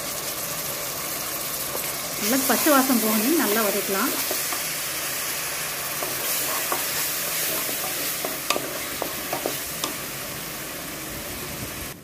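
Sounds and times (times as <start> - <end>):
food sizzling in oil: 0.0 - 12.0
wooden spatula knocking pot: 7.5 - 10.0.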